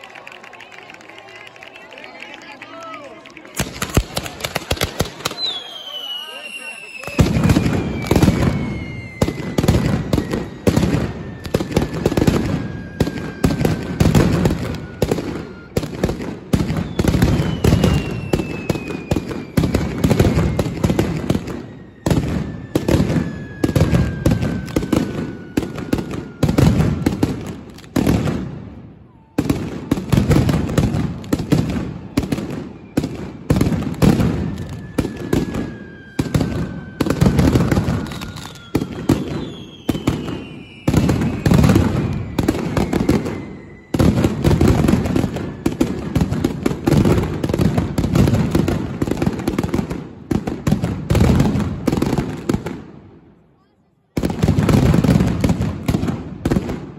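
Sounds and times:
firecracker barrage: 0:00.0 - 0:53.4, 0:54.2 - 0:56.9
falling whistles: 0:05.1 - 0:16.0, 0:16.6 - 0:27.3, 0:32.4 - 0:46.1.

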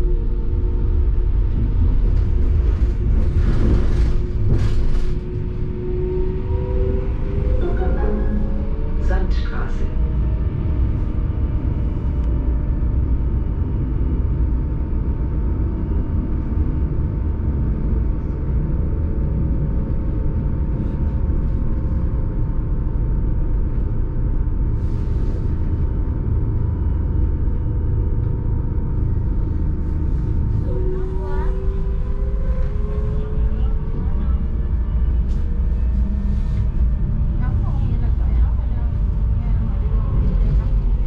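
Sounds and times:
tram wheels rumbling on rails: 0:00.0 - 0:12.2, 0:19.0 - 0:41.0
thin steady whine: 0:22.5 - 0:41.0.

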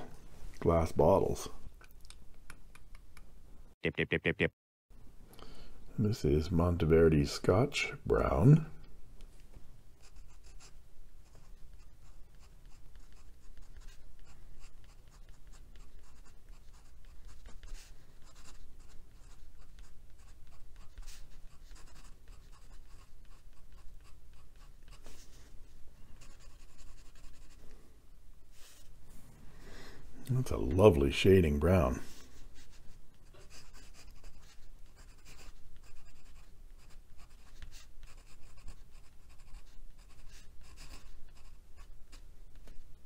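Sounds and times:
pen nib scratching on paper: 0:10.0 - 0:25.2, 0:26.2 - 0:27.6, 0:32.6 - 0:42.8.

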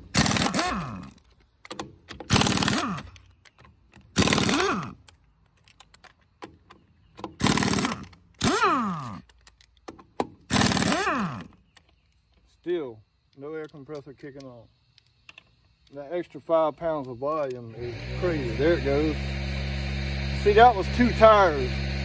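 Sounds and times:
pneumatic impact wrench hammering: 0:00.0 - 0:03.3, 0:03.9 - 0:05.1, 0:06.4 - 0:11.6
air motor whine: 0:17.7 - 0:22.0.

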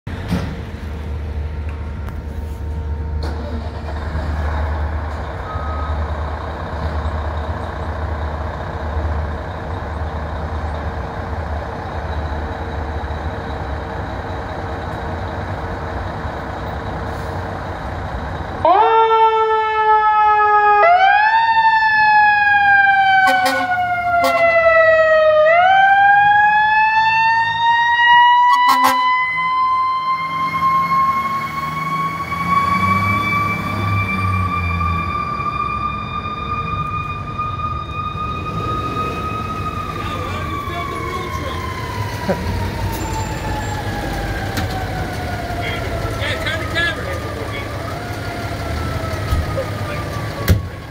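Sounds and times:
fire engine motor rumble: 0:00.1 - 0:50.9
siren wailing: 0:18.6 - 0:50.9.

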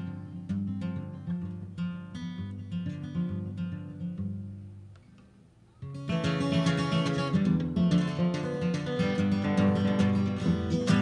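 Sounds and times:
guitar picked notes: 0:00.0 - 0:11.0
guitar strummed chords: 0:05.8 - 0:11.0.

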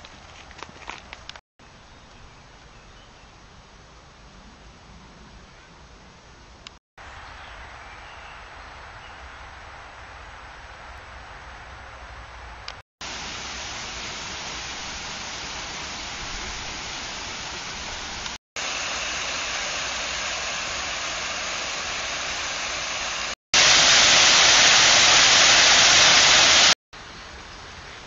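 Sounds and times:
river flowing: 0:13.0 - 0:26.8
water pouring down: 0:13.0 - 0:26.8.

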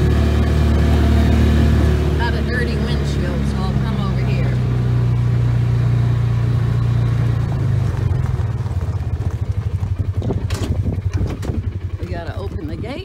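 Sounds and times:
utility vehicle engine: 0:00.0 - 0:13.0.

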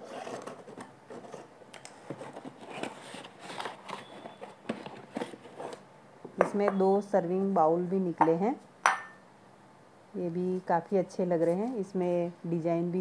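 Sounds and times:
packaging rustling and crinkling: 0:00.0 - 0:05.8.

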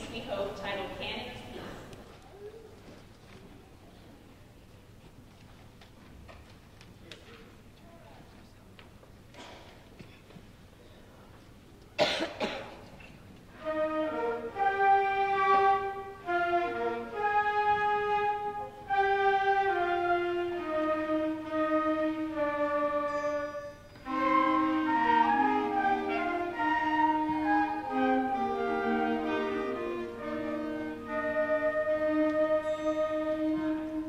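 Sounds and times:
person coughing: 0:12.0 - 0:12.8
concert band playing: 0:13.6 - 0:34.0.

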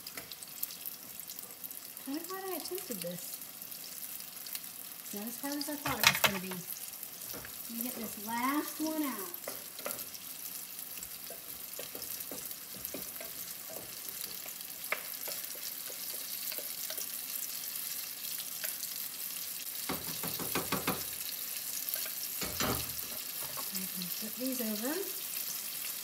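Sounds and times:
deep-frying sizzle and pops: 0:00.0 - 0:26.0
wooden spoon knocking and scraping: 0:05.8 - 0:06.6, 0:11.3 - 0:14.0.

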